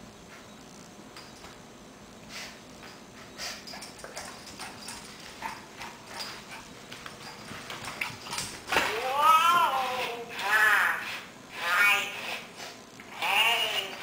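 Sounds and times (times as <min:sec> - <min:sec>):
dog claws clicking on tile floor: 0:02.8 - 0:10.6.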